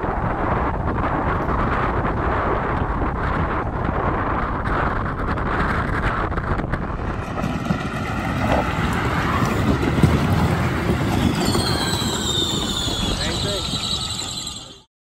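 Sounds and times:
wind rushing on microphone: 0:00.0 - 0:14.8
wheels rumbling over asphalt: 0:00.0 - 0:14.9
high whine sliding down: 0:06.6 - 0:14.9.

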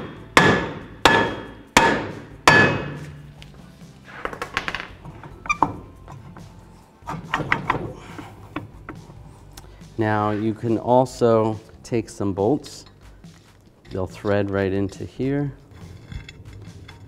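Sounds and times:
hammer striking metal rotor: 0:00.0 - 0:03.1
metal rotor ringing: 0:13.9 - 0:17.0.

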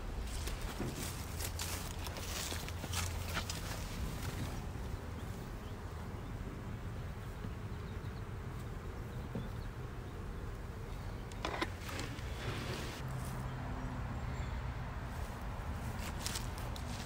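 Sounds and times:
honeybees buzzing: 0:01.0 - 0:13.0.

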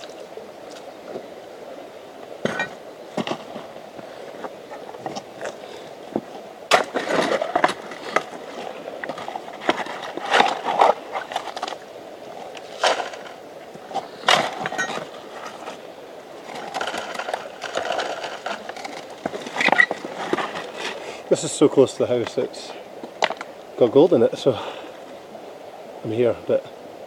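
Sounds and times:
shovel scraping gravel: 0:06.7 - 0:08.8.

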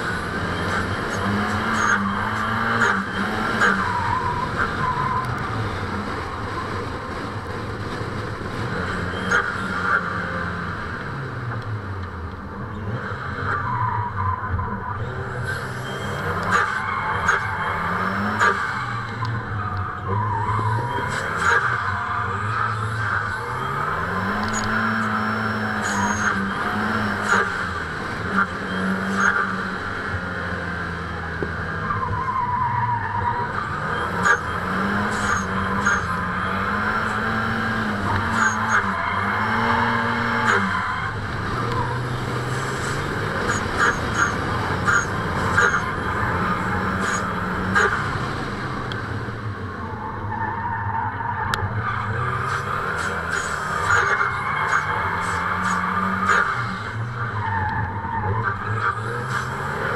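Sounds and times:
car engine revving: 0:00.0 - 0:59.9
tyres squealing: 0:31.8 - 0:48.3.

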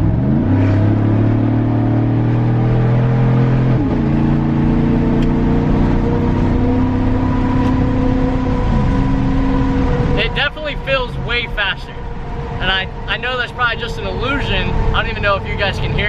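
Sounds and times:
truck engine accelerating: 0:00.0 - 0:16.0.

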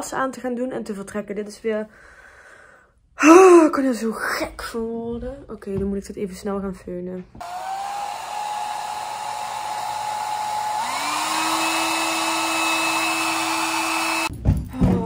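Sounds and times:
hair dryer blowing: 0:07.4 - 0:14.3.

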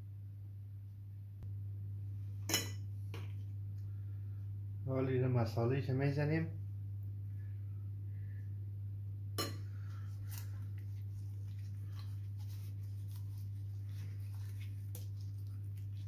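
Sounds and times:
steady low hum: 0:00.0 - 0:16.0
soft rubbing: 0:09.7 - 0:16.0.

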